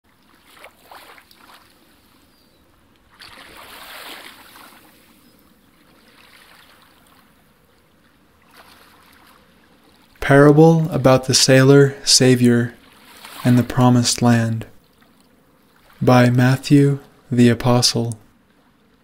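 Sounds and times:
sea waves washing in: 3.1 - 14.4.

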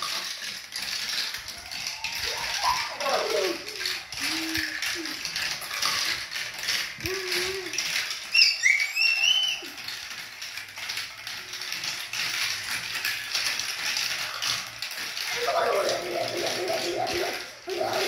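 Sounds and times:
marbles clattering on plastic tracks: 0.0 - 18.0
plastic chain links clicking: 0.0 - 18.0
high squeaks: 1.6 - 10.0.

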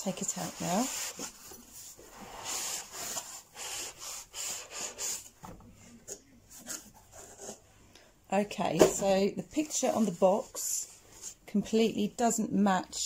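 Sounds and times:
foam sliding against cardboard: 0.1 - 5.3.

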